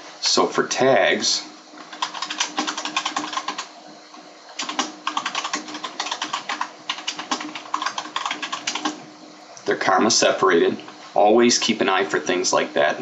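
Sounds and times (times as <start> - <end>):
fast typing on keyboard: 1.9 - 3.7, 4.6 - 9.0.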